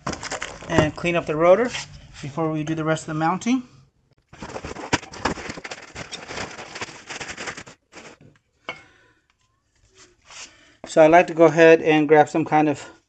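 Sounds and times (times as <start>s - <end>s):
plastic bag crinkling: 0.0s - 0.7s, 4.4s - 8.2s
handling sounds: 0.0s - 2.4s, 4.3s - 8.4s.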